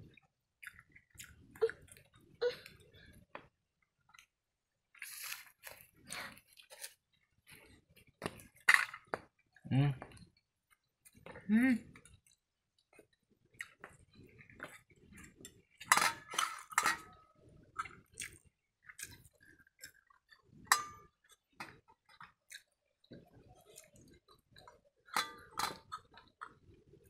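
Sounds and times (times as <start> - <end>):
chewing: 0.1 - 3.5, 12.0 - 15.9, 17.7 - 27.0
steel bowls and pots clinking: 15.4 - 17.3, 20.7 - 21.2, 25.0 - 26.2.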